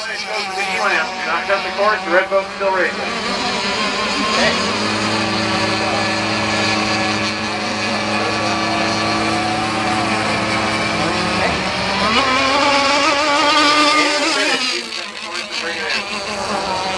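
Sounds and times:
model boat engines droning: 0:00.0 - 0:16.9.

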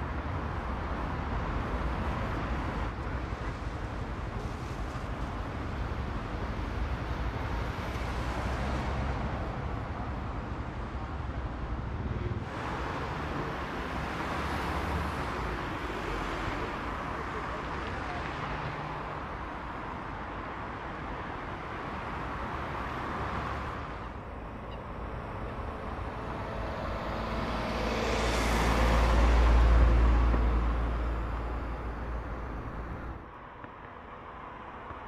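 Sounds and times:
traffic on wet road: 0:00.0 - 0:35.0
vehicle passing close: 0:25.2 - 0:33.2.

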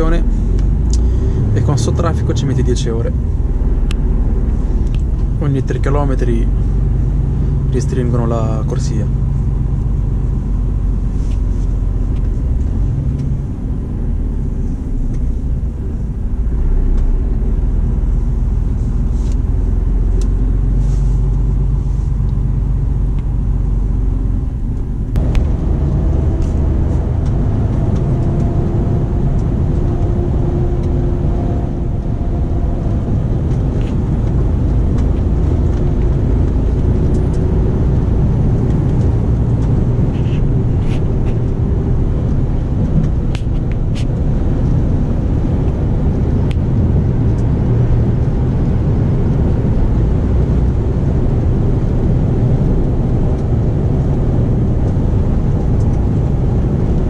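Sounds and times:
steady whine: 0:00.0 - 0:57.0
truck engine droning: 0:00.0 - 0:57.0
tyre and road noise: 0:00.0 - 0:57.0.

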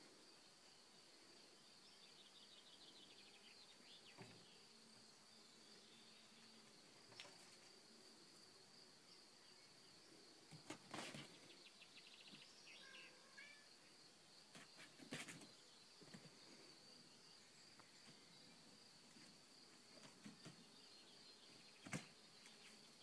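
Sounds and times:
high insect drone: 0:00.0 - 0:23.0
bird chirp: 0:01.5 - 0:07.2, 0:11.2 - 0:14.0.

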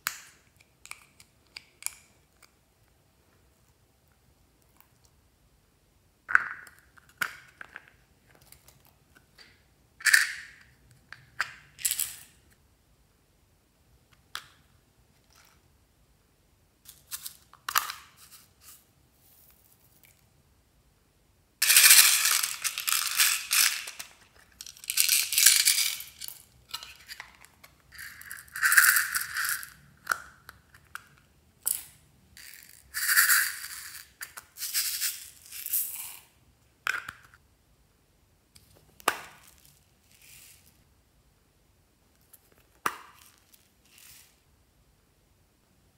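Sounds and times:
plastic beads clicking and rattling: 0:21.6 - 0:30.2, 0:30.8 - 0:36.3, 0:39.0 - 0:40.8.

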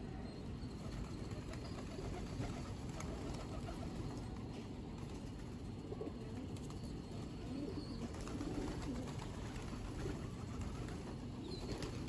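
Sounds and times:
pigeons cooing: 0:00.6 - 0:12.0
wings flapping: 0:00.8 - 0:04.4, 0:08.0 - 0:12.0.

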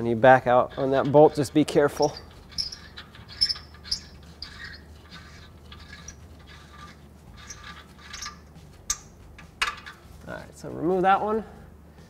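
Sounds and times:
soft squeaky bolt rubs: 0:00.5 - 0:10.3.

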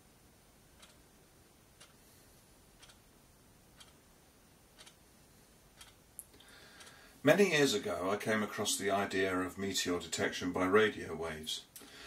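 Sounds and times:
low background hiss: 0:00.0 - 0:12.0
faint regular ticking: 0:00.1 - 0:07.3.

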